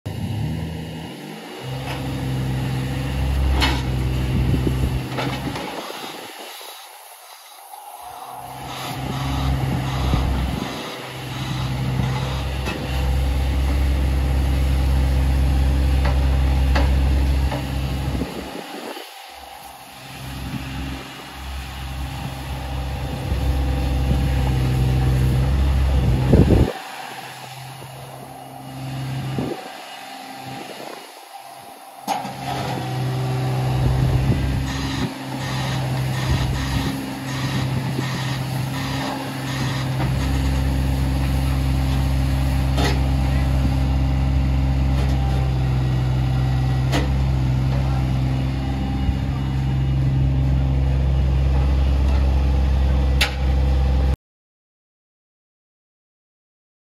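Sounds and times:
excavator diesel engine running: 0.1 - 54.2.

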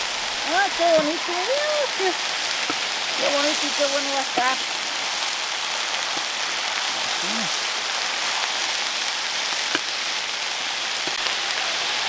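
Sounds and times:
food sizzling on a hot griddle: 0.0 - 12.0.

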